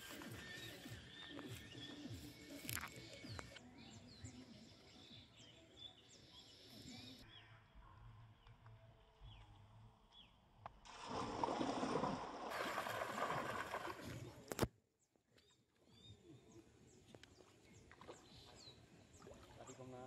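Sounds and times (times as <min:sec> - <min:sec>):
net splashing into water: 0:10.9 - 0:14.4.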